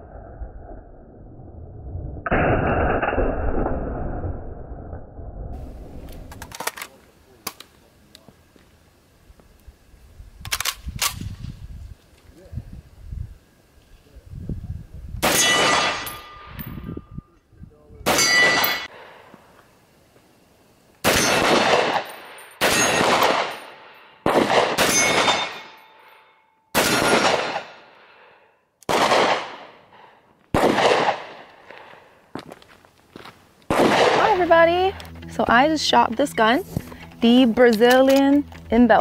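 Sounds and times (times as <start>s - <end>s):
rifle shots echoing: 15.2s - 16.5s, 18.0s - 19.2s, 21.0s - 26.1s, 26.7s - 28.2s, 28.9s - 29.9s, 30.5s - 32.0s, 33.7s - 34.8s.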